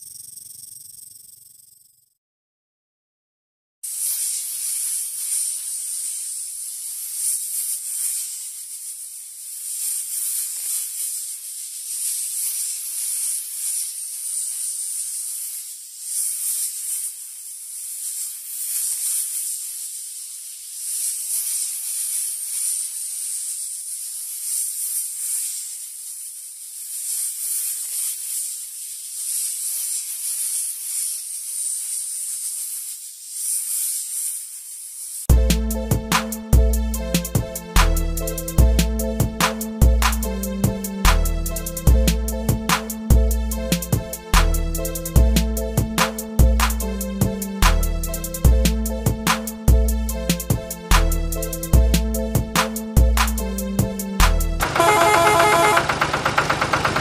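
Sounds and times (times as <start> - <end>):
snake hissing: 3.9 - 54.4
music with a beat: 35.3 - 55.9.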